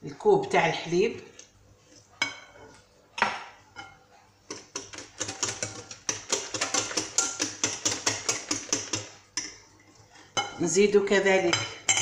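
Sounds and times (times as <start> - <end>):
whisk clicking against glass bowl: 4.5 - 9.1.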